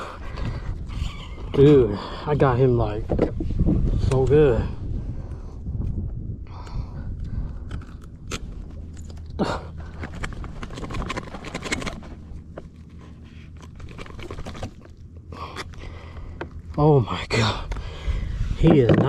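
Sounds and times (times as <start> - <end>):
pliers crunching clicks and scrapes: 7.6 - 9.4.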